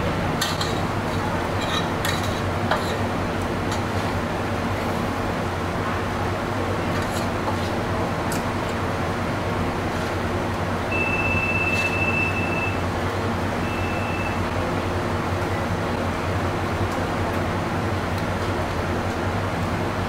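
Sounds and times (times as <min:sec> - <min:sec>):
indoor room hum: 0:00.0 - 0:20.0
high steady beep tone: 0:10.9 - 0:12.8, 0:13.6 - 0:14.5.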